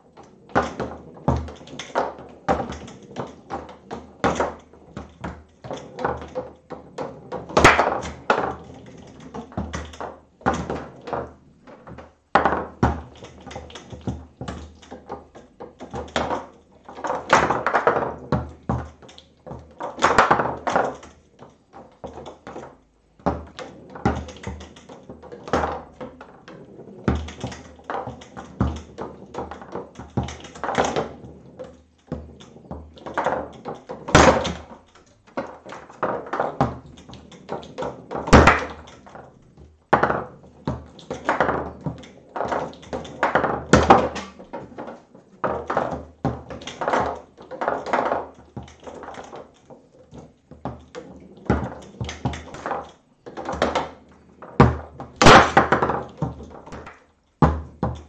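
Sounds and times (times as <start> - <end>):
foosball ball taps and knocks: 0.2 - 58.0.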